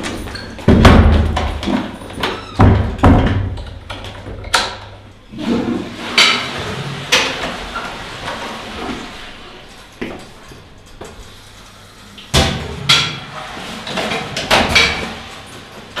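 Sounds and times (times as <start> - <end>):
wooden stall doors banging: 0.0 - 4.5.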